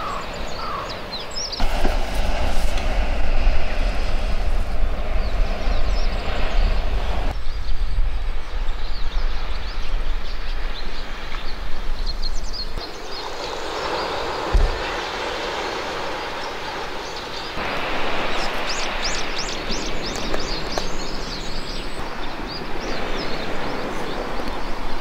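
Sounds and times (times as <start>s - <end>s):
small birds chirping: 0.0s - 1.8s, 5.0s - 25.0s
surf on sandy beach: 0.0s - 25.0s
wind buffeting microphone: 0.0s - 25.0s
low thump: 14.5s - 14.8s.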